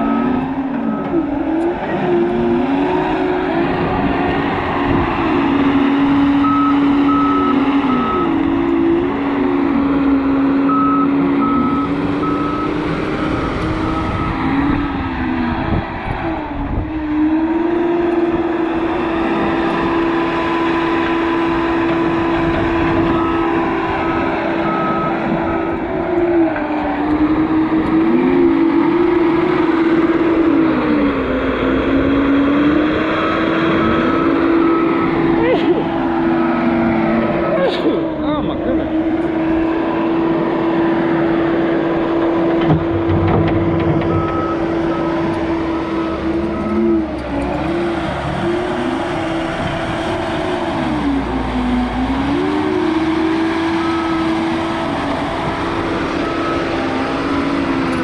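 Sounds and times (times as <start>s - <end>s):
diesel engine running hard: 0.0s - 58.0s
backup alarm beeping: 10.7s - 14.6s.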